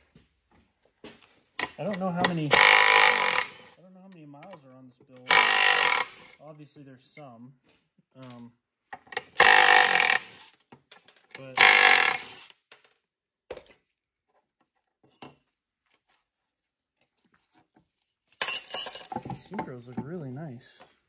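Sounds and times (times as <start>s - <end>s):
cordless impact driver bursts: 2.4s - 3.8s, 5.3s - 6.4s, 9.3s - 10.5s, 11.6s - 12.6s.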